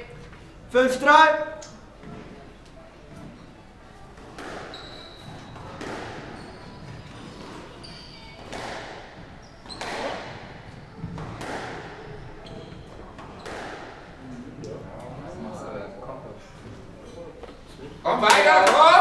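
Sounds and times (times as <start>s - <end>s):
shoes squeaking on wooden floor: 3.1s - 11.4s, 12.0s - 13.9s
squash ball hits echoing: 4.2s - 7.6s, 8.3s - 14.2s.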